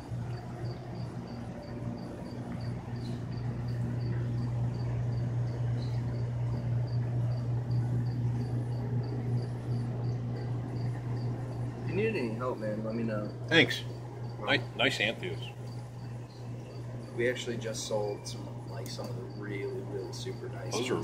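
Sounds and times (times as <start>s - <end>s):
aquarium pumps humming: 0.0s - 21.0s
cricket chirping: 0.0s - 21.0s.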